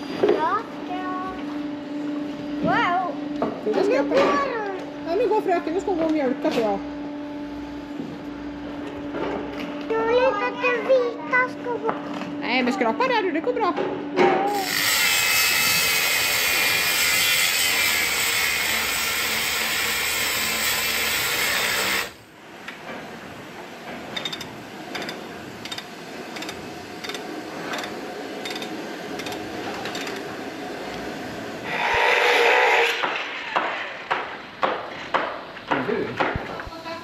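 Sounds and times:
hand tool scraping and knocking: 31.7s - 35.3s.

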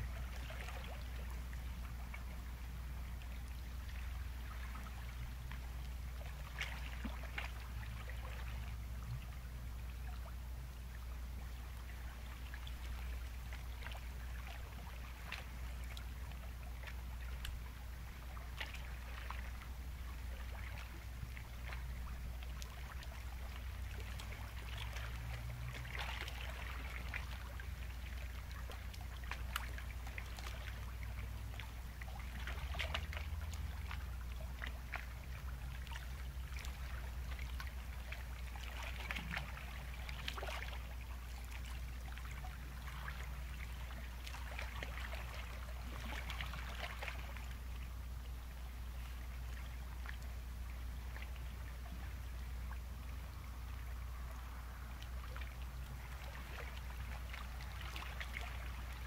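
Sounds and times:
waves breaking on shore: 50.7s - 59.0s.

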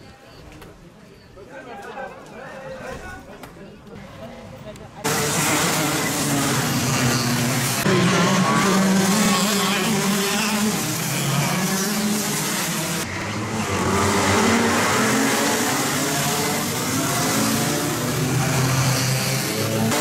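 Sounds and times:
kart engines revving: 5.0s - 20.0s.

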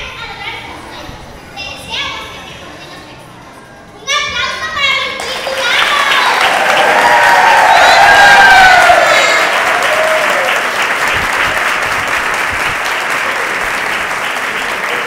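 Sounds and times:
audience applauding: 5.2s - 15.0s.

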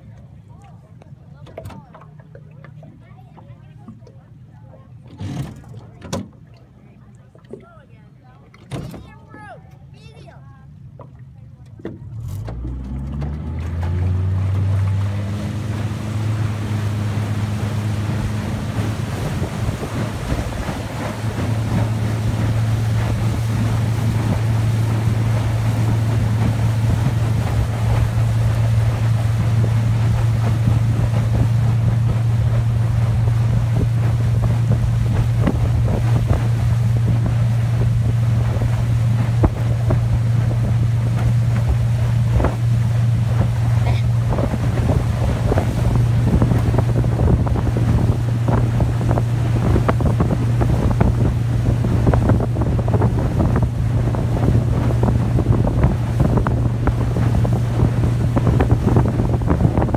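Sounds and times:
outboard motor running: 0.0s - 59.9s
water rushing past hull: 0.0s - 59.9s
wind buffeting microphone: 14.1s - 59.9s.

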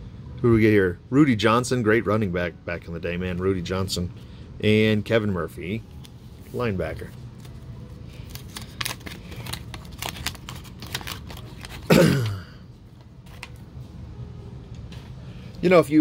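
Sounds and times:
cards rustling: 6.0s - 12.3s, 13.0s - 13.8s
wax paper wrapper crinkling and tearing: 6.9s - 12.0s.

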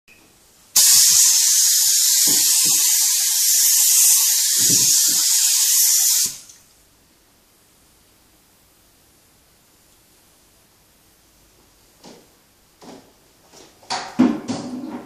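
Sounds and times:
spray gun hissing: 0.8s - 6.6s.

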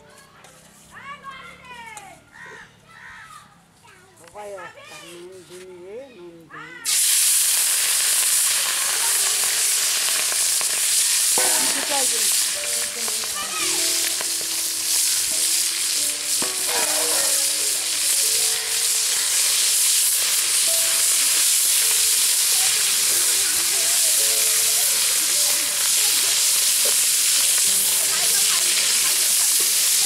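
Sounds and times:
shrimp sizzling in oil: 6.9s - 30.0s.

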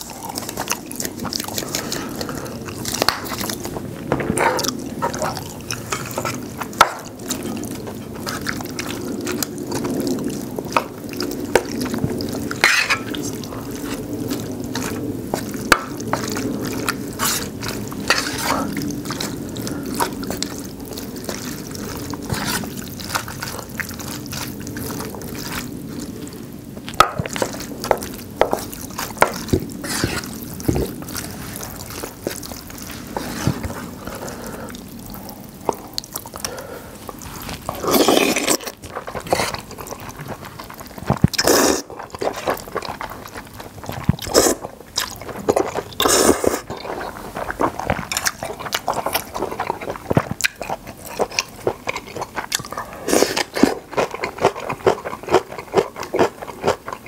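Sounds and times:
wet mouth eating sounds: 0.0s - 57.0s.

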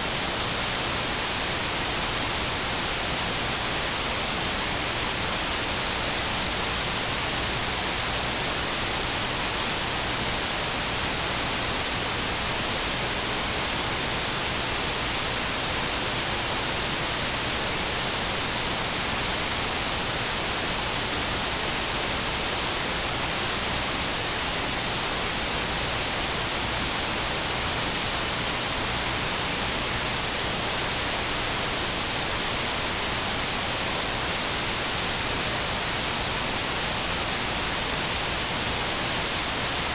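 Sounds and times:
static hiss: 0.0s - 39.9s.

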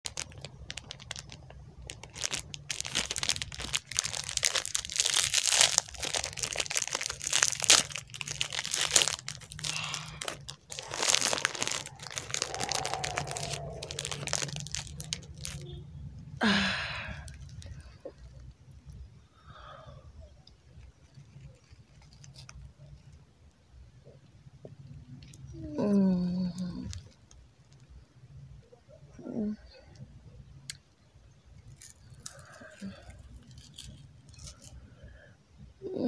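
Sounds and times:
plastic wrapper crinkling and tearing: 0.0s - 15.8s, 16.4s - 18.8s, 20.7s - 23.2s, 26.6s - 27.9s, 31.6s - 34.8s.

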